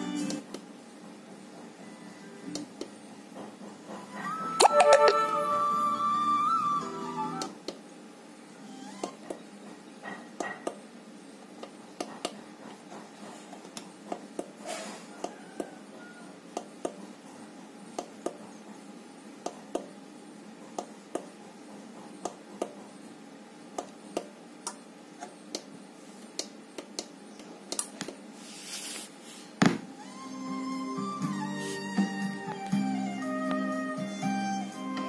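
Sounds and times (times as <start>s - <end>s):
loud thump: 29.6s - 29.9s.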